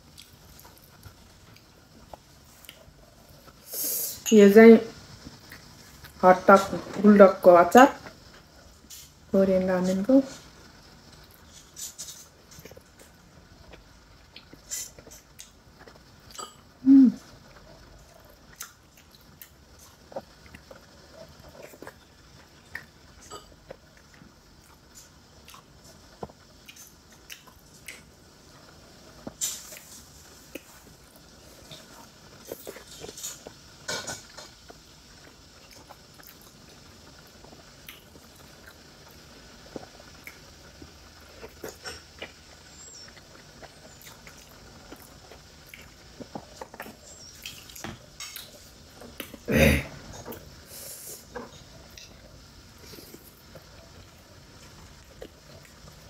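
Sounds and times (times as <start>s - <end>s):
dumplings being bitten and chewed: 17.6s - 49.5s.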